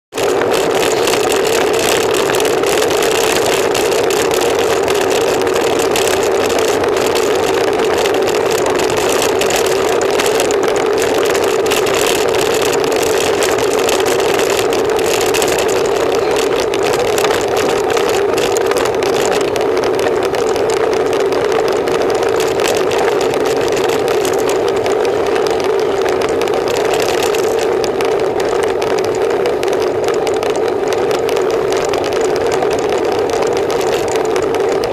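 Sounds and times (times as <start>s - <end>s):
road noise: 0.1s - 34.9s
constant hum: 0.2s - 34.9s.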